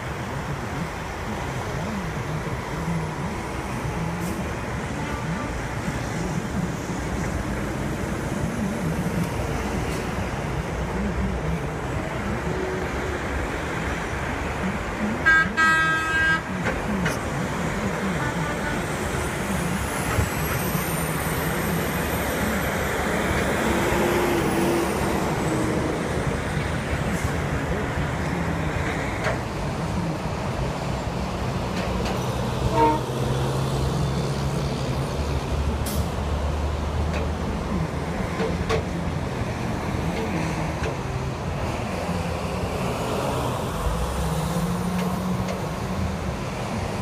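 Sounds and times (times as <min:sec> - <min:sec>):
highway traffic: 0:00.0 - 0:47.0
vehicle horn honking: 0:15.2 - 0:16.5, 0:32.6 - 0:33.2.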